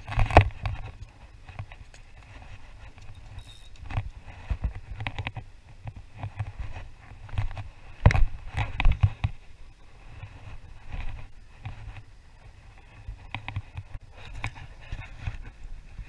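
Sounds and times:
fishing gear clicks and knocks: 0.0s - 9.4s
wind rumbling on microphone: 0.0s - 16.0s.

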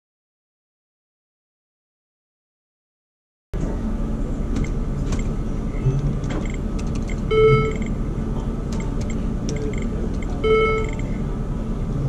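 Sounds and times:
electronic chime: 7.3s - 7.9s.

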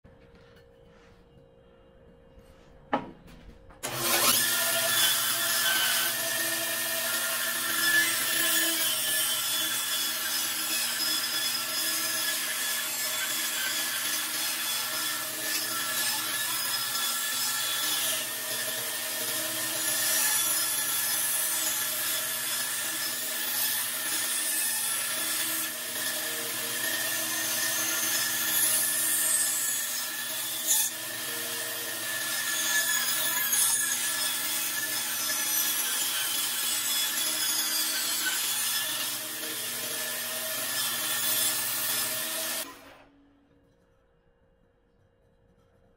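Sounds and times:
bandsaw cutting wood: 3.8s - 43.1s.

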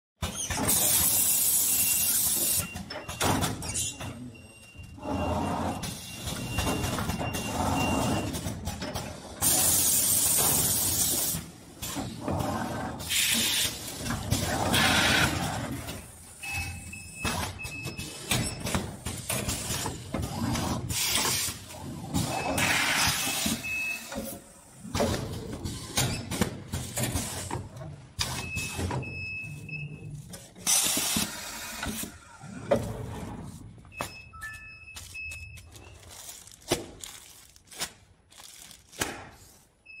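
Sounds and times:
pneumatic air blasts and clacks: 0.2s - 4.1s, 8.0s - 29.1s, 30.3s - 32.3s.

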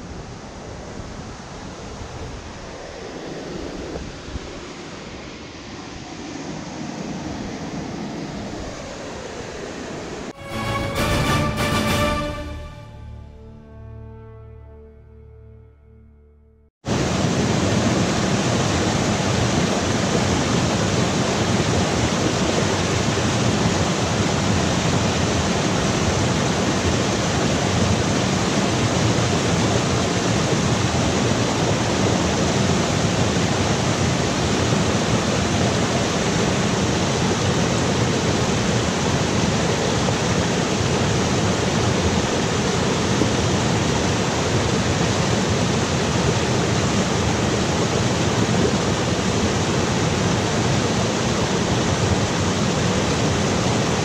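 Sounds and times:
loud rushing water: 0.0s - 12.9s, 16.9s - 54.0s.

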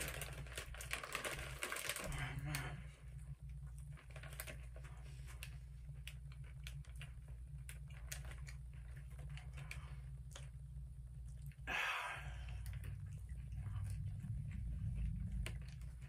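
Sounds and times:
chips crunching as chewed: 0.0s - 2.6s
foil snack bag crinkling: 0.0s - 2.8s, 3.7s - 10.6s
steady low hum: 0.0s - 16.0s.

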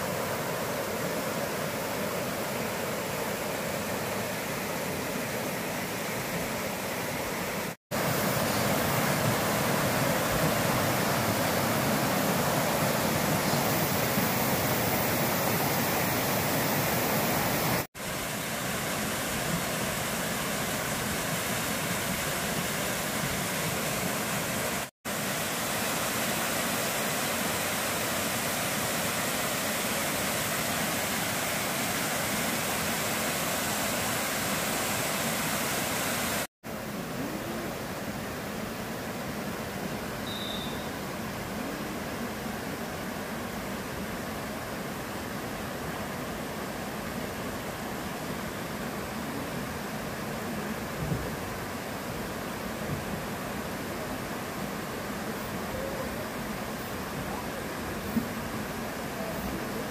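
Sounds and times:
mountain stream rushing over rocks: 0.0s - 40.2s, 40.8s - 59.9s
small waterfalls pouring: 7.9s - 36.5s.

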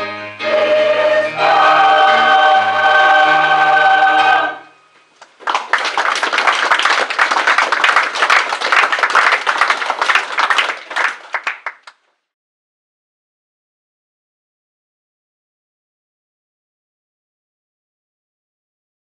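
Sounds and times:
choir singing held chord: 0.0s - 4.8s
audience applauding: 5.2s - 12.1s.

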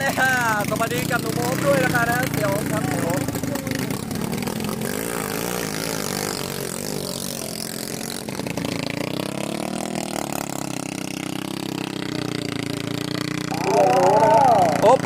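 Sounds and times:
boat engines running: 0.0s - 15.0s.

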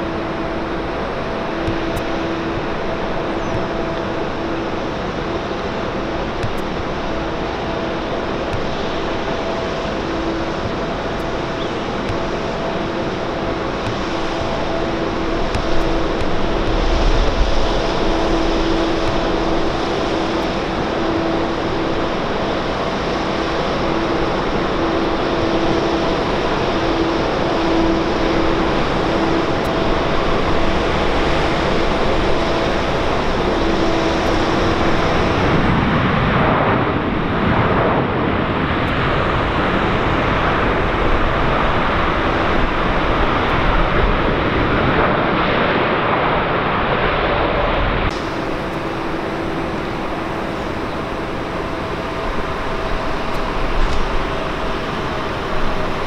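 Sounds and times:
jet engines roaring: 0.0s - 56.0s
steady hum: 0.0s - 56.0s.

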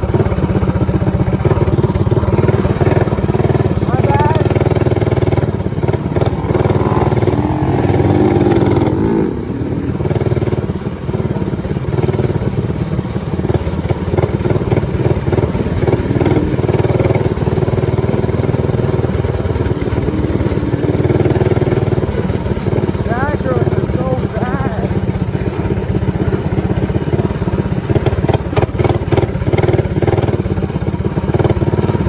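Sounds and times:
minibike engine running under load: 0.0s - 32.0s.

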